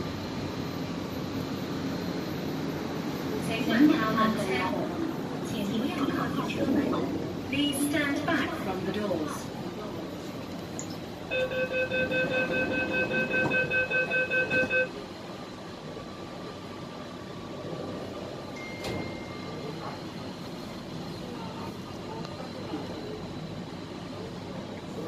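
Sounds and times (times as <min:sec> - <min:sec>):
train background hum: 0:00.0 - 0:25.0
rapid door warning beeps: 0:11.3 - 0:14.9.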